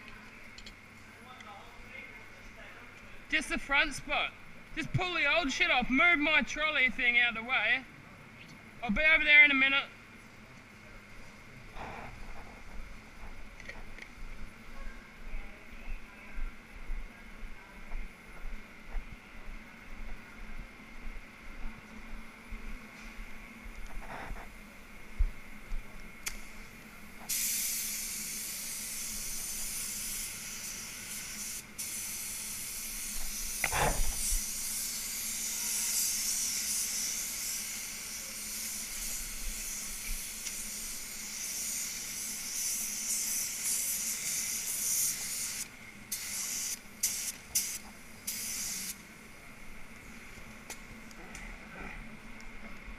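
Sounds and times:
spray gun hissing: 26.3s - 49.0s.

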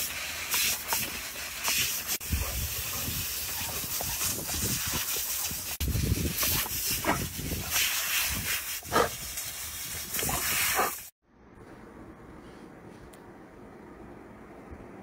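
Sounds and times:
hose spraying water jet: 0.0s - 11.1s.

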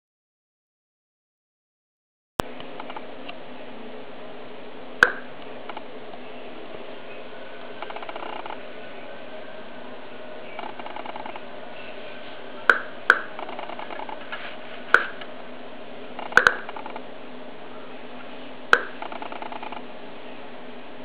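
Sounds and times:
steady background hum: 2.4s - 21.0s
survey meter speaker clicks: 5.0s - 5.8s, 16.3s - 16.8s.

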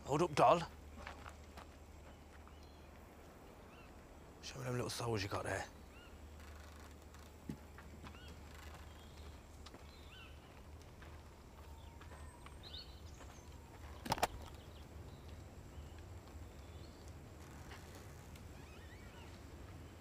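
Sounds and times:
bird chirps: 11.6s - 17.0s, 18.6s - 19.4s
case latches snapping open: 14.0s - 14.5s.

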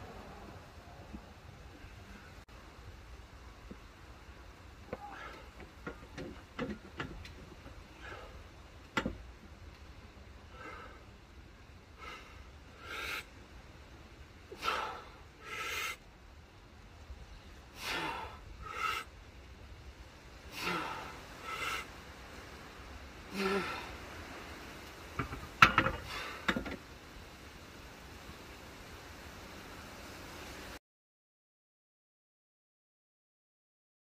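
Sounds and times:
man breathing hard: 4.9s - 6.0s, 7.8s - 8.5s, 10.5s - 11.2s, 11.9s - 13.4s, 14.5s - 16.0s, 17.7s - 19.1s, 20.5s - 22.0s, 23.3s - 24.1s, 25.9s - 26.6s.

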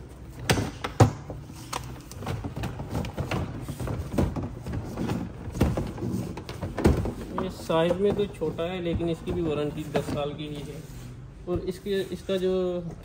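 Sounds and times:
plastic appliance knocking and scraping: 2.1s - 10.6s.

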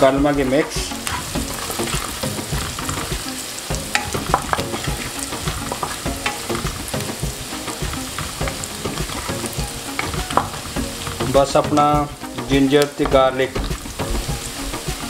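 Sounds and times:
spices sizzling in oil: 0.0s - 15.0s
spoon scraping pan: 0.4s - 11.6s.

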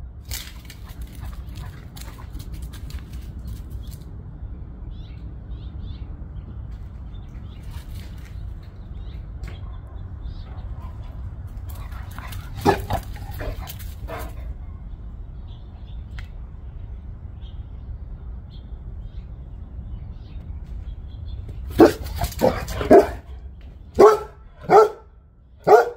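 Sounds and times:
dog barking: 11.8s - 14.8s, 21.7s - 23.4s, 24.0s - 25.9s.

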